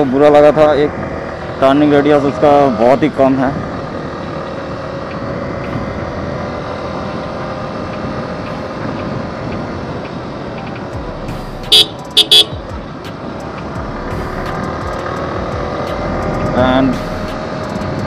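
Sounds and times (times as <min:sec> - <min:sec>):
motorcycle engine running: 0:00.0 - 0:18.0
horn toots: 0:11.6 - 0:12.6.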